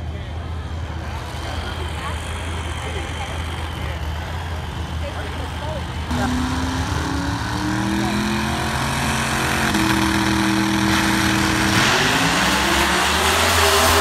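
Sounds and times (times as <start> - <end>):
car engine accelerating: 5.9 - 14.0.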